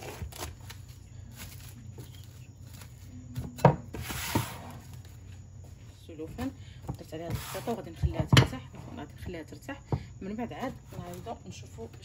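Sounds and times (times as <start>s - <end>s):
cardboard rustling scrape: 0.0s - 5.3s
low steady hum: 0.0s - 12.0s.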